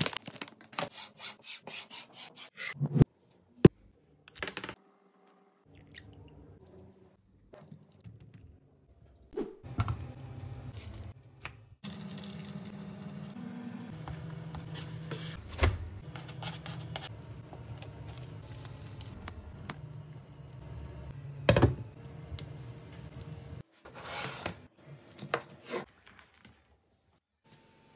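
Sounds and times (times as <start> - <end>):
crisp crust crackling: 17.6 - 19.7.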